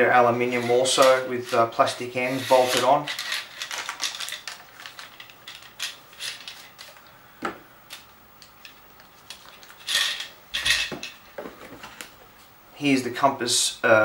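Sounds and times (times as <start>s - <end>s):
plastic bag rustling: 0.3s - 7.0s.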